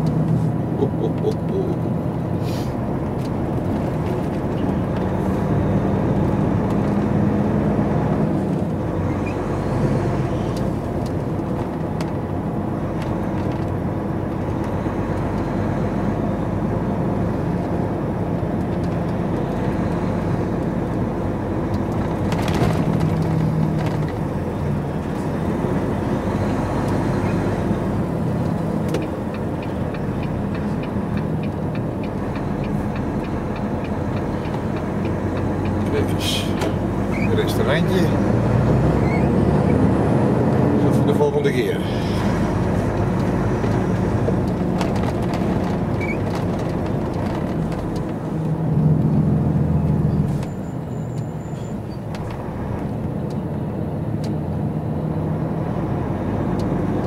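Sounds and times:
truck diesel engine running: 0.0 - 55.5
turn indicator ticking: 28.1 - 36.0.

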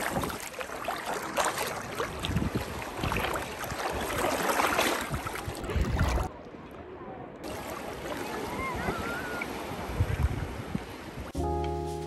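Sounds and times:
waves washing onto beach: 0.0 - 6.3, 7.4 - 11.4
wind gusting on microphone: 2.1 - 3.3, 8.7 - 11.4.

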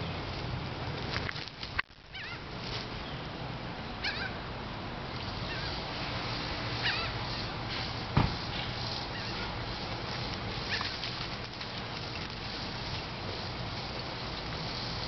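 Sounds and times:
dog whining: 4.0 - 4.4, 6.8 - 7.1.

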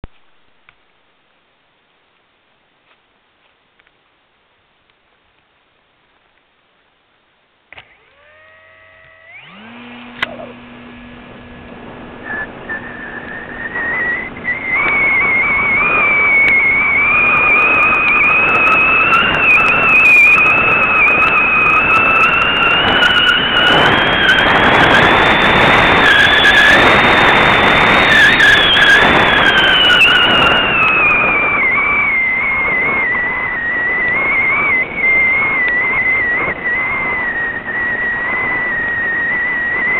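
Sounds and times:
click: 7.7 - 8.3, 10.1 - 10.4
small motor whining: 7.7 - 39.9
wind noise on microphone: 7.7 - 39.9.

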